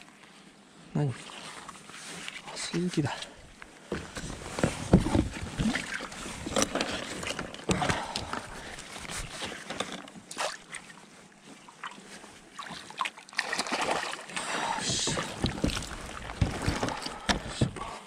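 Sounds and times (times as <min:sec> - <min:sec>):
fishing gear knocking on hull: 0:03.9 - 0:08.5, 0:14.8 - 0:17.9
fish splashing at surface: 0:12.6 - 0:14.3.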